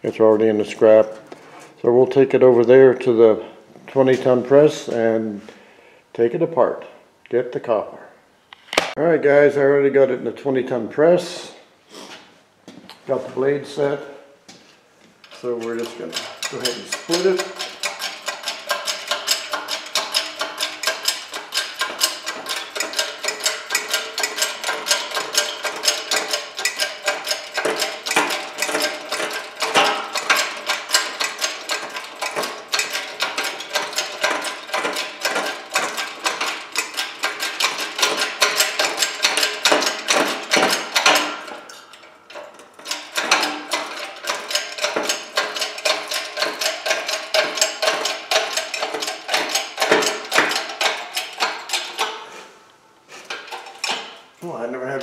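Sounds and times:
hydraulic press pump clicking: 0:15.3 - 0:52.3, 0:53.2 - 0:54.2.

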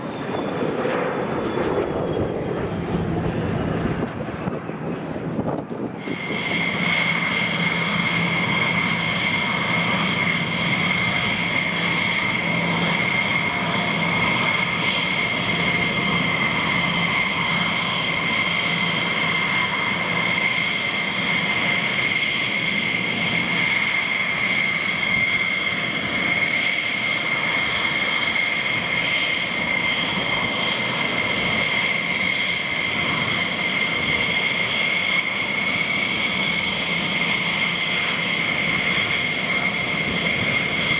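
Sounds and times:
jet engines running: 0:00.0 - 0:40.9.

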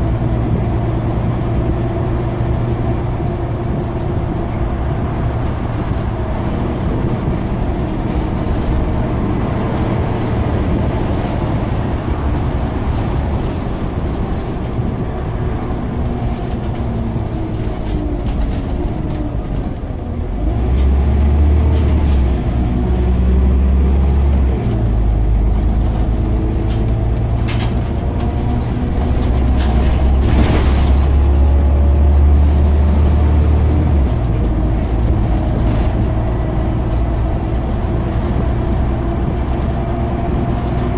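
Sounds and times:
bus diesel engine drone: 0:00.0 - 0:40.9
road noise: 0:00.0 - 0:40.9.

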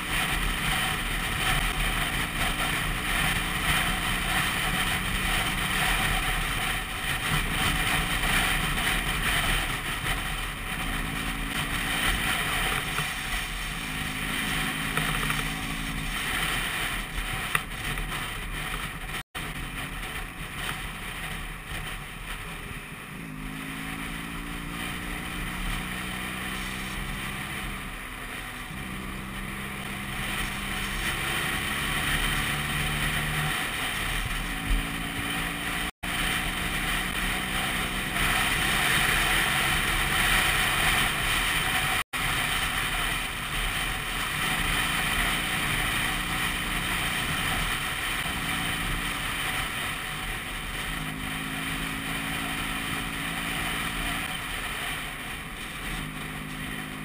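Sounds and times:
scooter engine running: 0:00.0 - 0:57.0
wind on microphone: 0:00.0 - 0:57.0.

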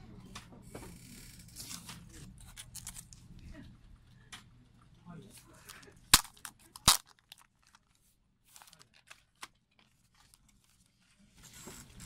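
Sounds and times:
plastic wrap crackling and tearing: 0:06.1 - 0:10.5.

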